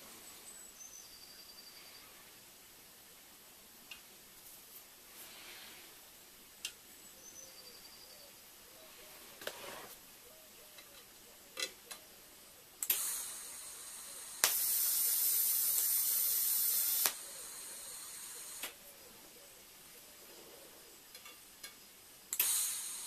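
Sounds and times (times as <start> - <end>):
torch click: 12.8 - 13.4, 14.3 - 17.2, 18.1 - 18.8, 22.3 - 23.0
welding torch hissing: 12.8 - 18.9, 22.3 - 23.0.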